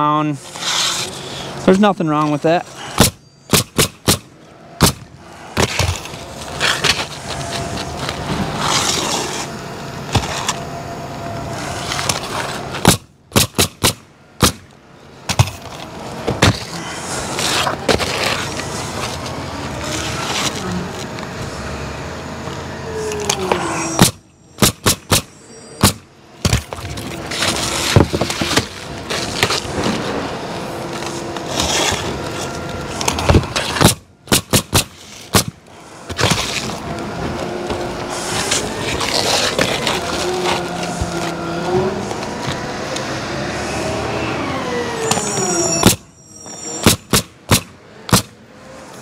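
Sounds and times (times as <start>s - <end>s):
shingles rustling: 0.0s - 10.7s, 11.5s - 21.5s, 23.1s - 42.8s
passing traffic rumble: 0.0s - 49.0s
nail gun firing: 3.0s - 5.0s, 12.8s - 14.7s, 24.0s - 26.0s, 33.3s - 35.6s, 46.8s - 48.3s.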